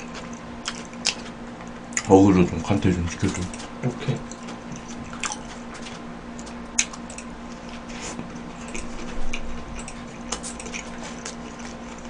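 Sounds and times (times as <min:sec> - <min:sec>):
wet chewing: 0:00.0 - 0:12.0.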